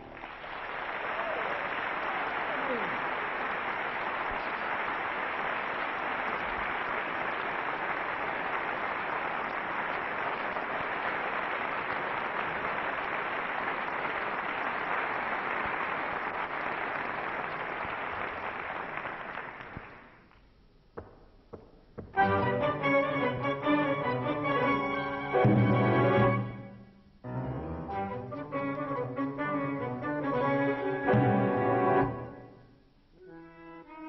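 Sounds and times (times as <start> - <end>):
audience applauding: 0.0 - 20.5.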